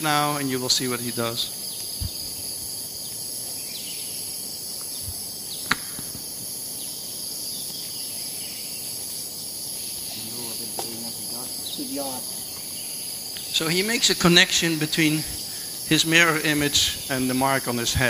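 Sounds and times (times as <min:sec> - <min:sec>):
insects shrilling: 0:00.0 - 0:18.0
sharp click: 0:05.6 - 0:06.2.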